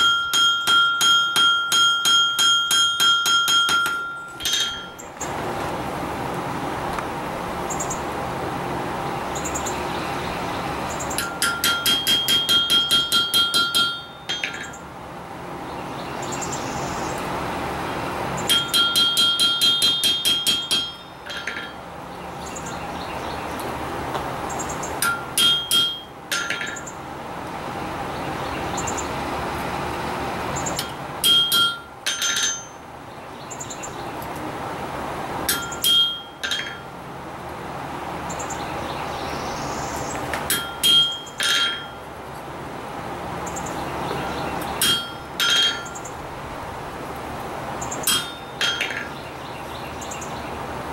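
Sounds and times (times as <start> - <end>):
hammer blows on steel: 0.0 - 5.0
hammer on chisel cutting steel: 0.0 - 5.0, 11.2 - 14.8, 18.5 - 21.8, 25.0 - 26.8, 30.8 - 32.7, 35.4 - 36.9, 40.3 - 42.0, 44.8 - 46.0, 48.0 - 49.1
steady hum: 0.0 - 50.9.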